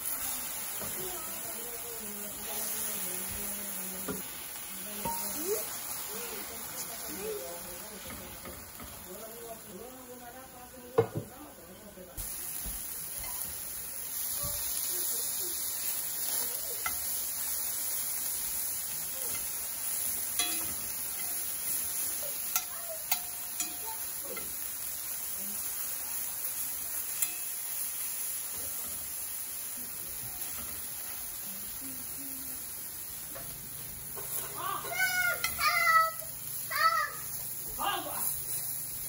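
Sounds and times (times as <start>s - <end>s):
chicken sizzling in a skillet: 0.0s - 39.0s
metal tongs clicking on pan: 5.0s - 5.6s, 16.2s - 18.3s, 18.9s - 25.2s, 26.5s - 29.1s.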